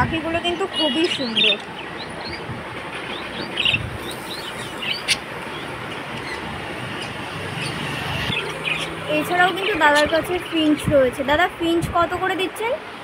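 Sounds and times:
budgerigars chirping: 0.8s - 10.5s.

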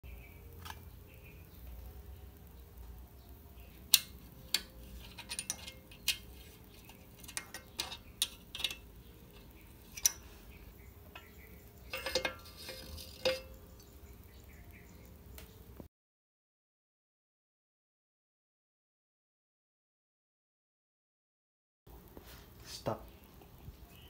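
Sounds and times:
wrench clicking on bolts: 3.9s - 10.2s
metal scraping clatter: 4.5s - 10.6s, 11.2s - 14.0s.

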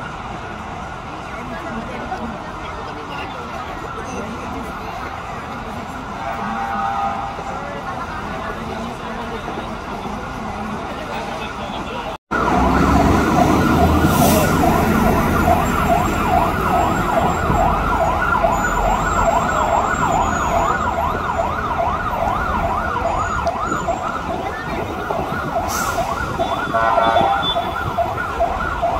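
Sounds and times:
engine rumble and street traffic: 0.0s - 28.9s
fire engine siren yelping: 12.3s - 28.9s.

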